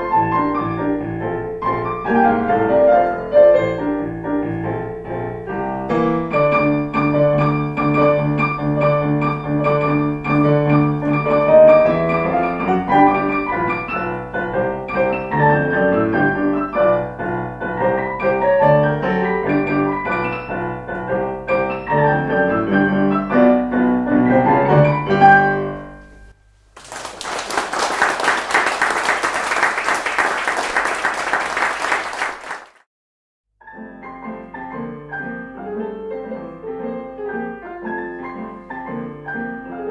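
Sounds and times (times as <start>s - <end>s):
piano piece: 0.0s - 26.4s, 33.6s - 39.9s
audience applauding: 26.8s - 32.9s.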